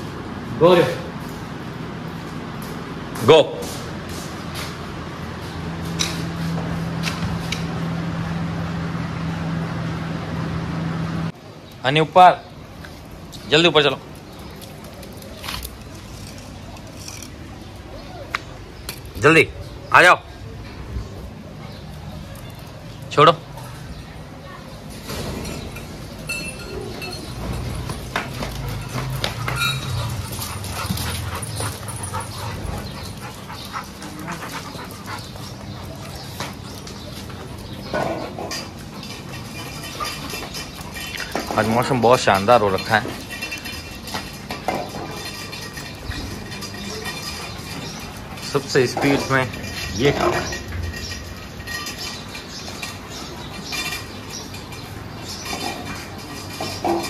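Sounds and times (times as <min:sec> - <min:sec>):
dogs whimpering and yipping: 0:28.4 - 0:37.0
dog eating from steel bowl: 0:38.4 - 0:57.0.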